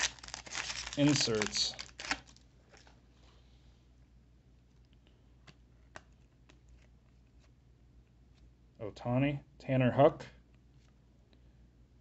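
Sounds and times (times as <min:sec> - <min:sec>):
cards being flipped: 0:00.0 - 0:02.9, 0:05.4 - 0:07.6.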